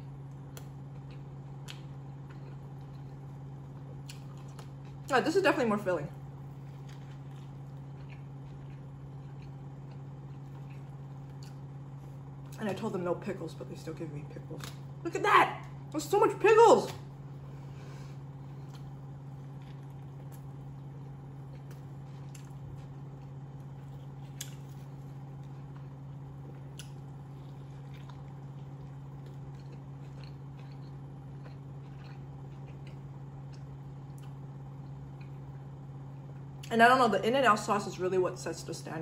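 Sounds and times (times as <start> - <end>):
steady low hum: 0.0 - 39.0
person chewing food: 0.4 - 5.1, 6.3 - 12.6, 17.6 - 36.7.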